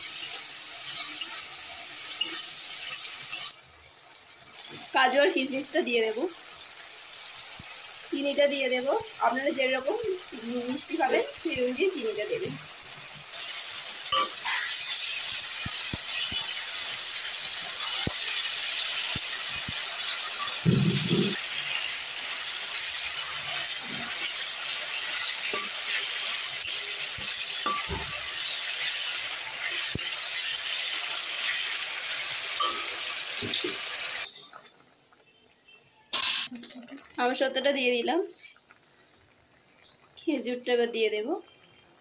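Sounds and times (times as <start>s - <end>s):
metal spatula scraping a pan: 0.0s - 3.6s, 12.9s - 16.5s, 23.0s - 34.8s
chutney sizzling in a pan: 0.0s - 42.0s.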